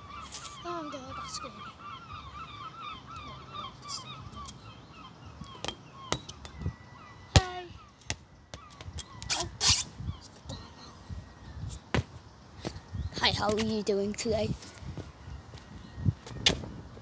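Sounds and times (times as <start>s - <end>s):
ball thudding on rubber surface: 7.3s - 8.2s.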